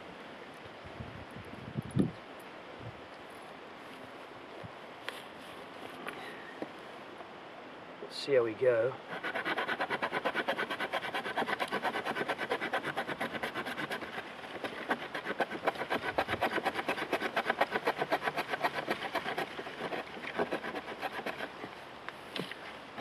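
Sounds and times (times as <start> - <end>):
knife sawing through branch: 9.1 - 21.6.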